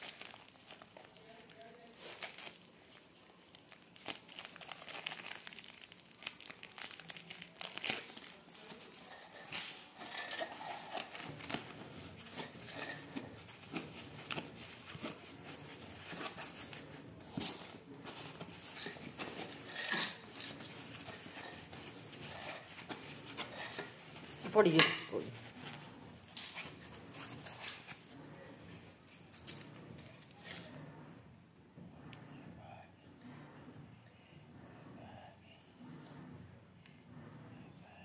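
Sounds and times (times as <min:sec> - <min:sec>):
plastic packaging crinkling: 0:00.0 - 0:16.8, 0:17.4 - 0:25.6.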